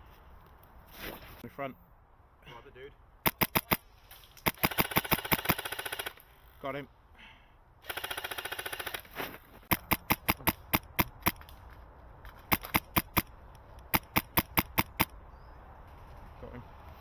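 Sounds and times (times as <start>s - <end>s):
airsoft rifle firing: 3.2s - 3.8s, 4.4s - 6.2s, 7.8s - 11.4s, 12.5s - 13.3s, 13.9s - 15.1s.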